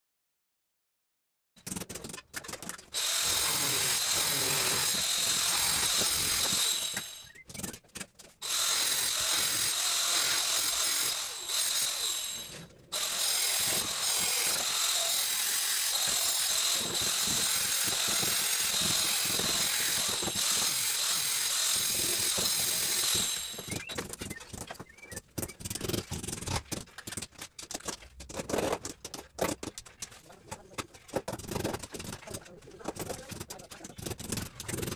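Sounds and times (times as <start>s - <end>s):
power tool whining: 2.9s - 7.7s, 8.4s - 24.3s
handling taps and knocks: 23.7s - 34.9s.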